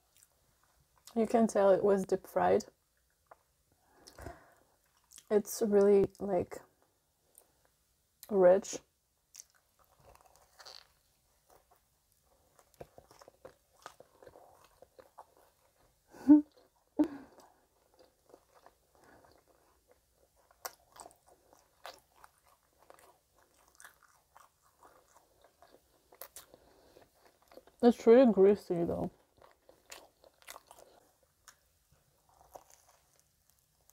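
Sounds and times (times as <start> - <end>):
person chewing crunchy food: 3.2 - 5.3, 9.3 - 27.8, 29.1 - 33.9.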